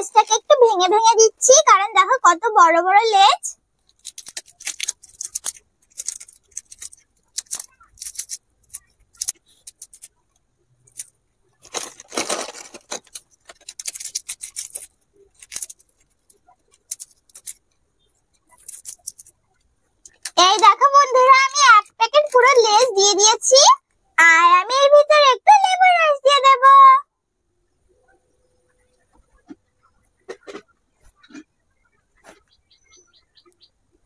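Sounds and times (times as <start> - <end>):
plastic chip packet rustling: 3.8 - 10.2, 10.8 - 19.4
potato chips crackling: 3.8 - 10.2, 10.8 - 19.4.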